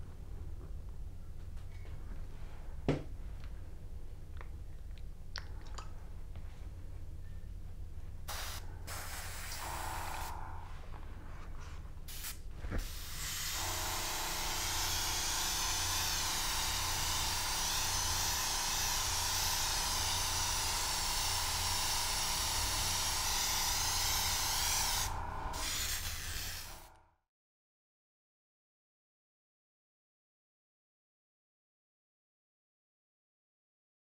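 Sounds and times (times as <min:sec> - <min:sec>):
airbrush spraying paint: 0:08.3 - 0:10.8, 0:12.1 - 0:26.9.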